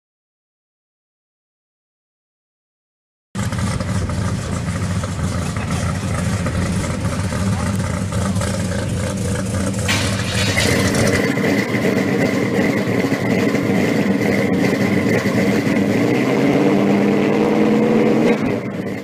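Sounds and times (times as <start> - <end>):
car engine running: 3.4 - 19.0.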